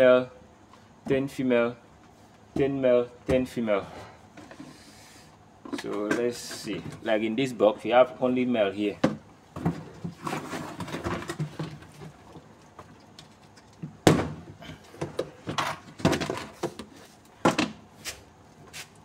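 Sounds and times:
hands scuffing plastic tubs: 9.5 - 14.0, 14.6 - 19.0.

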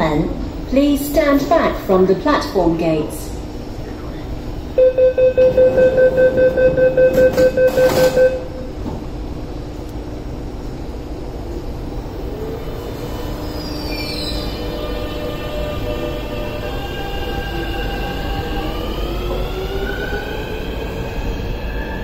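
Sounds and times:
rapid door warning beeps: 4.8 - 8.5.

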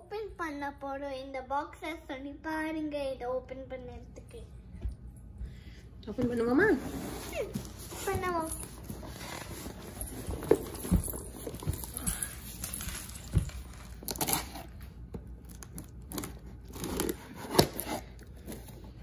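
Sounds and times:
packing tape ripping: 12.0 - 14.8, 15.4 - 18.6.

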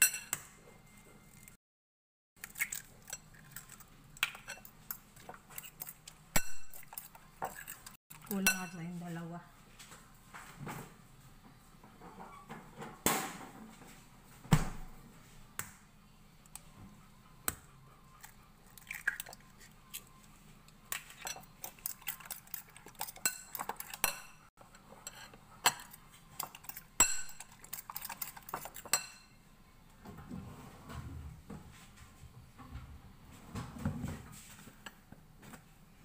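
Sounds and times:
metal spoon clinking in bowl: 0.0 - 0.4, 5.6 - 8.9, 20.9 - 29.4.

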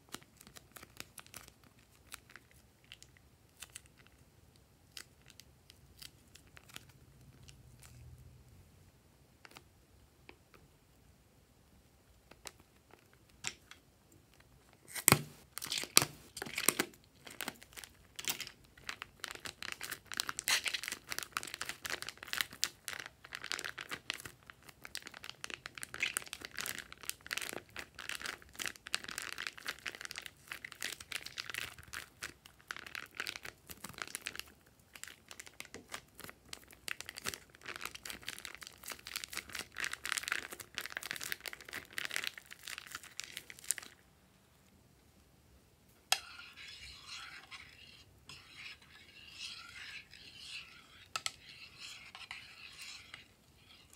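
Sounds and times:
plastic bag crinkling: 15.3 - 44.0, 46.4 - 53.9.

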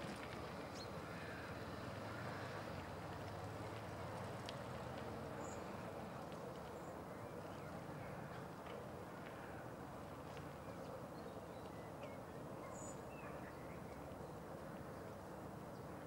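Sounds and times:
low background noise: 0.0 - 16.0.

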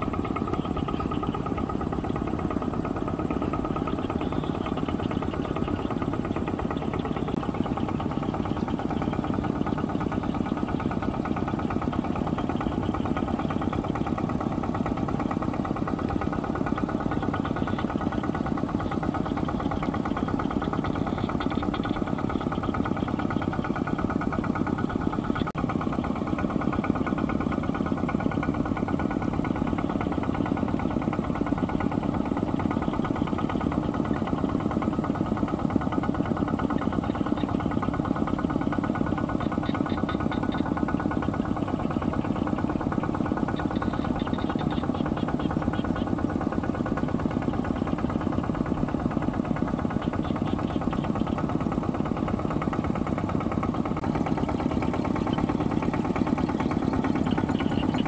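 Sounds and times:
diesel engine knocking: 0.0 - 58.0.

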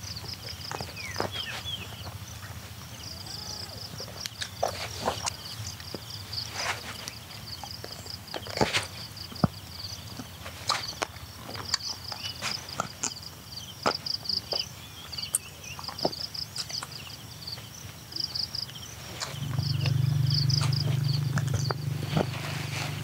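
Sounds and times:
insects chirping: 0.0 - 23.0
low hum: 19.2 - 23.0.

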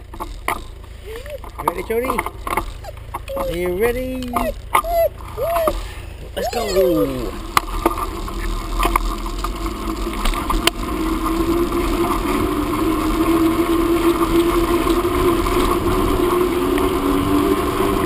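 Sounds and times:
bicycle tyres humming: 0.0 - 18.0
bicycle clicks: 7.5 - 17.0.

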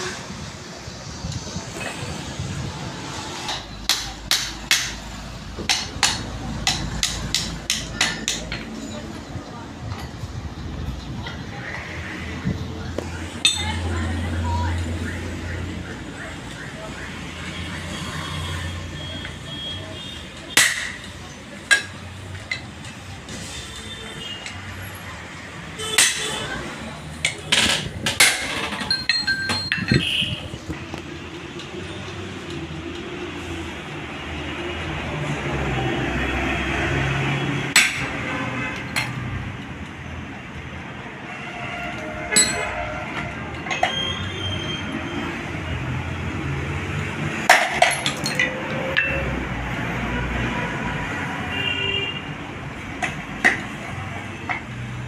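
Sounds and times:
hammer striking metal: 3.5 - 8.7, 20.5 - 21.1, 25.8 - 26.5, 37.7 - 38.2, 42.3 - 42.8.

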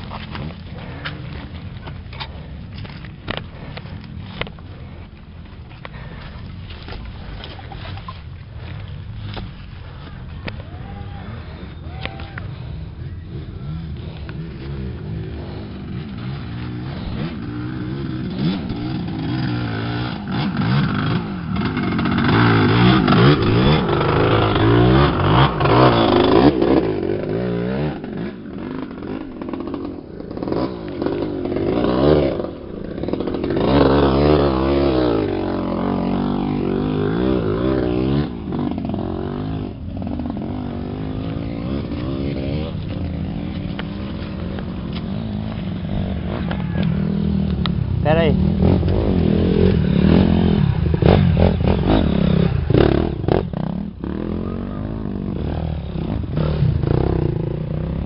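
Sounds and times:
dirt bike engines revving: 0.0 - 58.0.

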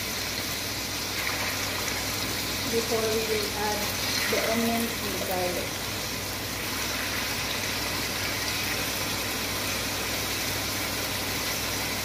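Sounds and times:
chicken sizzling in oil: 0.0 - 12.0.

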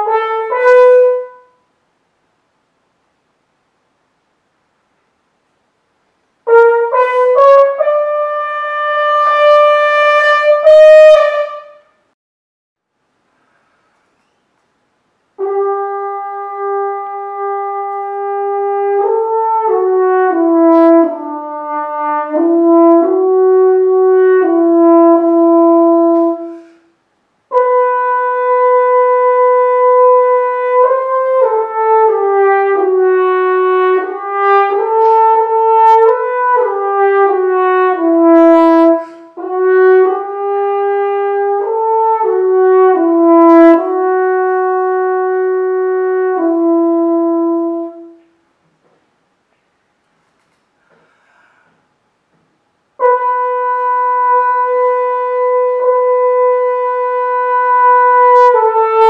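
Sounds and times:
french horn playing: 0.0 - 1.7, 6.4 - 12.0, 15.3 - 26.9, 27.5 - 48.4, 52.9 - 59.0.

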